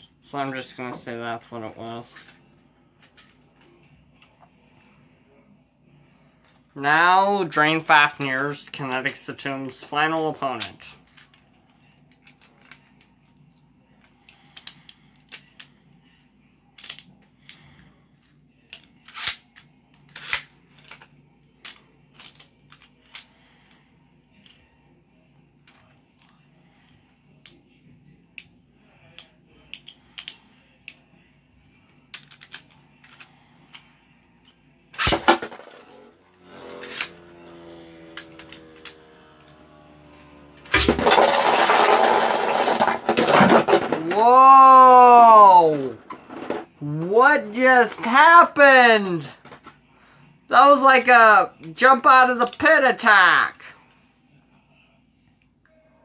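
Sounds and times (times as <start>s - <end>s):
spinning top whirring: 35.6s - 42.8s
spinning tops clattering: 40.7s - 44.1s.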